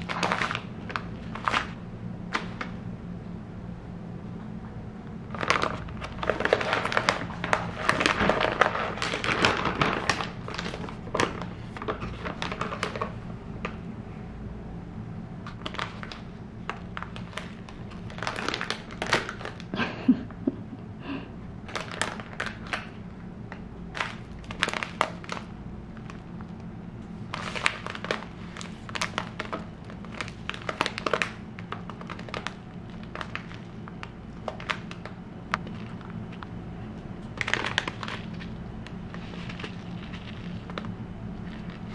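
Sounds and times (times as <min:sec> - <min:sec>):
plastic bags crinkling: 0:00.0 - 0:02.8, 0:05.3 - 0:13.2, 0:15.5 - 0:20.0, 0:21.6 - 0:23.0, 0:23.8 - 0:26.5, 0:27.1 - 0:41.9.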